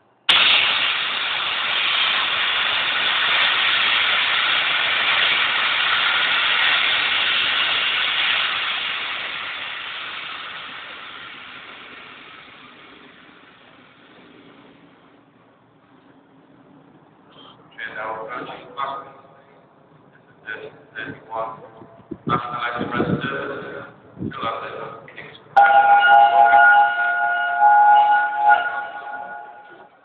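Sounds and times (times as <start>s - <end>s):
steam locomotive venting steam: 0.2s - 15.3s.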